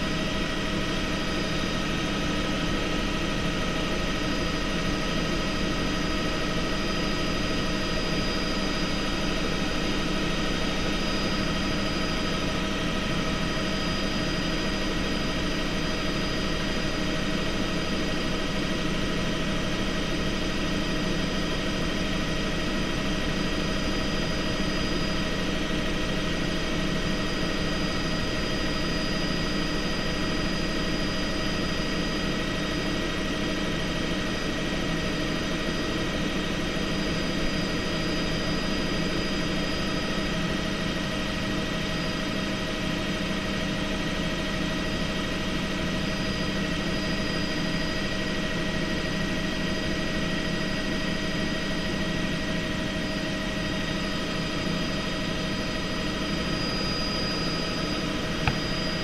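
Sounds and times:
helicopter rotor drone: 0.0 - 59.0
high steady turbine whines: 0.0 - 59.0.

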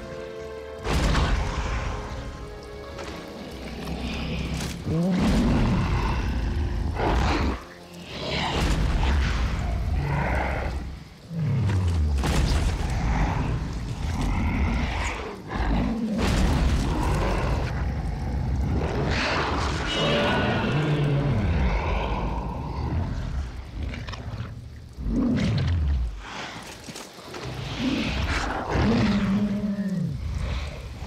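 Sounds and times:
monster roaring: 3.8 - 24.0.

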